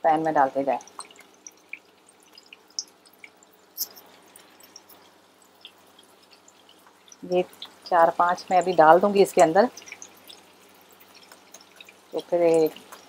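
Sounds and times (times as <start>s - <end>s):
oil sizzling in a frying pan: 0.4s - 13.0s
patty crackling in hot oil: 0.5s - 13.0s
oil popping and spitting: 9.8s - 13.0s.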